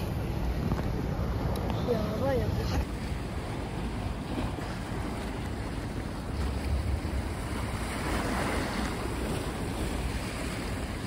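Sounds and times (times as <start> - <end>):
waves washing against rocks: 2.2 - 11.0.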